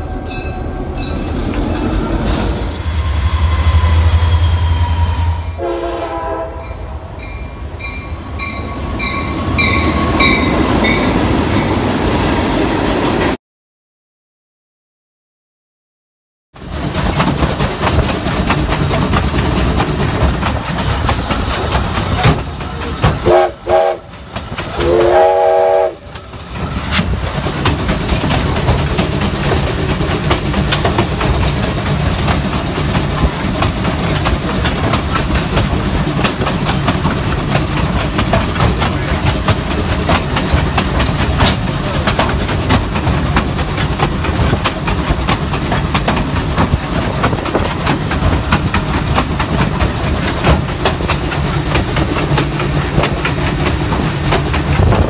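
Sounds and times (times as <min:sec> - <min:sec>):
locomotive rolling along track: 0:00.0 - 0:13.4, 0:16.6 - 0:55.0
steam whistle blast: 0:02.9 - 0:06.7, 0:23.2 - 0:24.1, 0:24.8 - 0:26.1.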